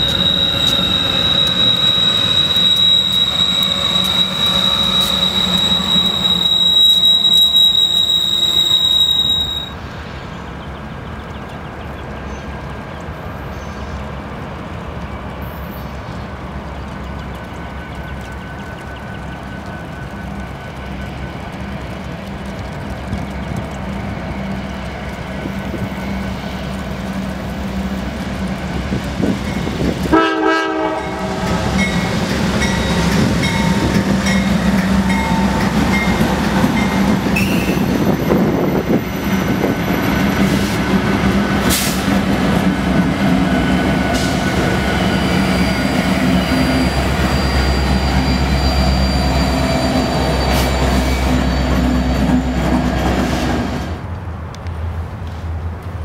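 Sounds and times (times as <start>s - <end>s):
freight wheels clattering and squealing: 0.0s - 9.8s, 31.6s - 54.0s
diesel locomotive engines droning: 0.0s - 56.0s
train horn: 30.1s - 32.0s.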